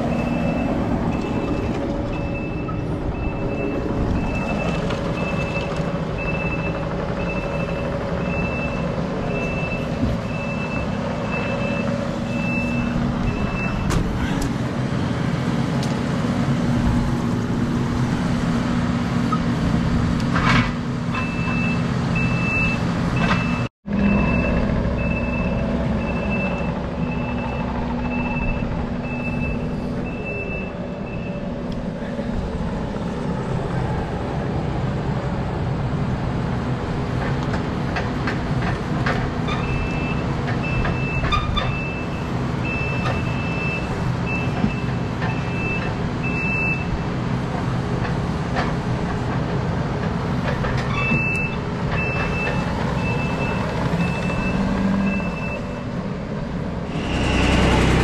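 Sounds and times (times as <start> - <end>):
diesel engine running: 0.0 - 58.0
reversing alarm beeping: 0.1 - 13.9, 21.2 - 31.6, 39.6 - 47.0, 51.0 - 56.0.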